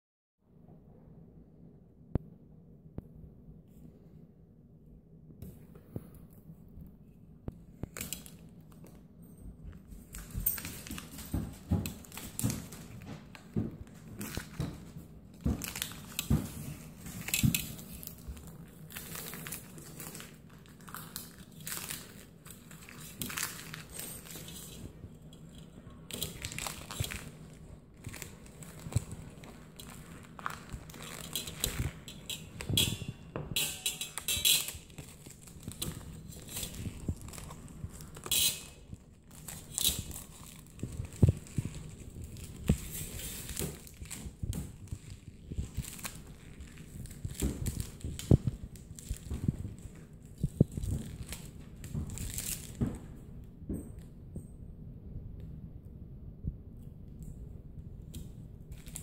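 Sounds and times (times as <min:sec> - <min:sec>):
plastic film peeling and crinkling: 0:07.7 - 0:09.0, 0:09.8 - 0:53.2, 0:58.1 - 0:59.0.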